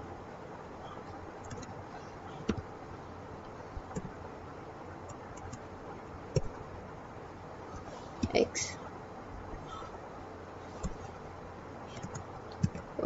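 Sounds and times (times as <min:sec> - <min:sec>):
low background hum: 0:00.0 - 0:13.0
computer keyboard keystrokes: 0:01.4 - 0:01.7, 0:11.9 - 0:12.9.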